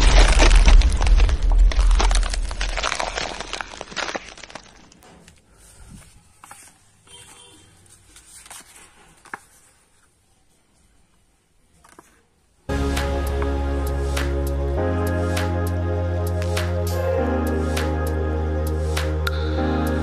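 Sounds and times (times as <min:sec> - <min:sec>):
explosion sound effect: 0:00.0 - 0:04.0
paper rustling and crinkling: 0:00.0 - 0:10.2.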